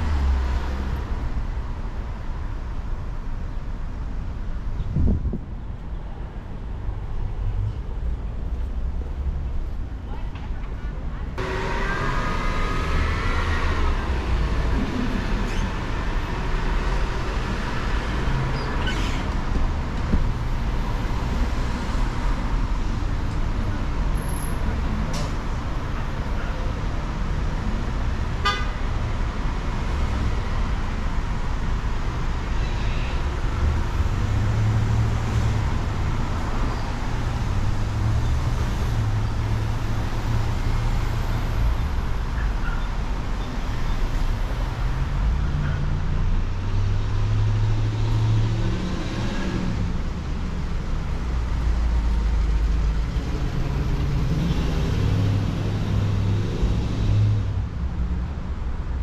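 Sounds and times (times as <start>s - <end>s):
street traffic rumble: 0.0s - 59.0s.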